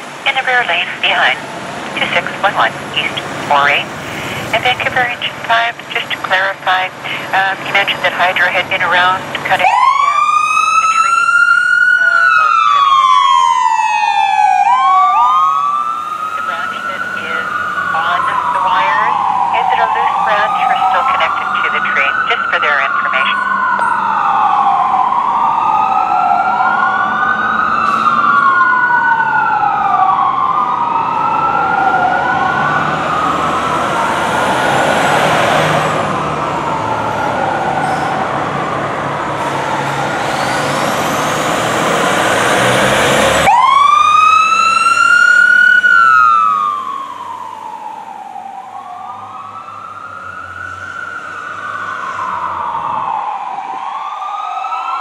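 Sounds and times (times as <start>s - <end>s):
fire truck sirens wailing: 0.0s - 55.0s.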